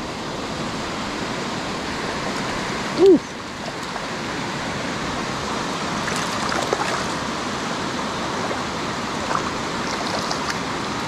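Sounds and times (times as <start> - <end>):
river water rushing: 0.0 - 11.0
fish splashing at surface: 8.4 - 10.6.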